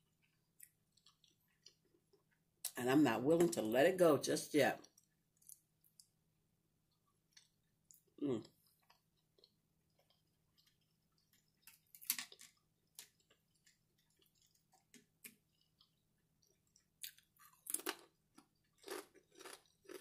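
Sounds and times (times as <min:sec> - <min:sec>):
crispy bacon crunching: 0:08.8 - 0:20.0.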